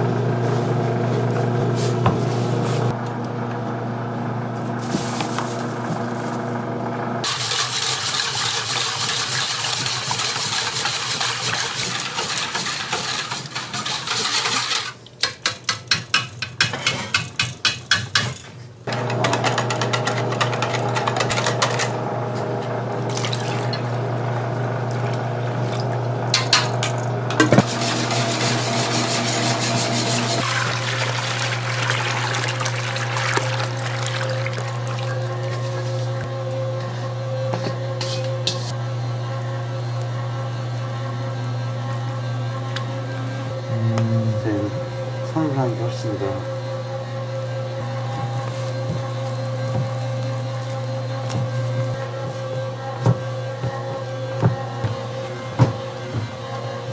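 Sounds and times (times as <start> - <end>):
whisk beating batter in steel bowl: 7.2 - 15.0, 27.6 - 34.5.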